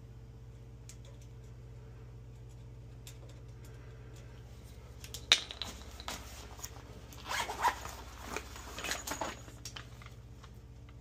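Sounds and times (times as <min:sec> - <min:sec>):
faint low hum: 0:00.0 - 0:11.0
rustling scraping handling noise: 0:05.6 - 0:10.2.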